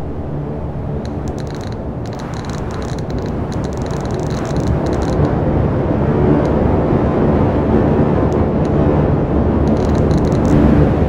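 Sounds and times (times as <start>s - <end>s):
dense rumbling overlapping tones: 0.0s - 11.0s
high ticks: 1.0s - 5.4s, 9.6s - 10.6s.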